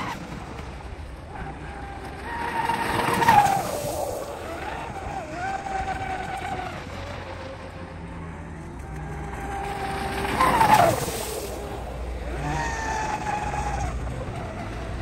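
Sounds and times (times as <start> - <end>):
water spray rushing: 9.5 - 13.9.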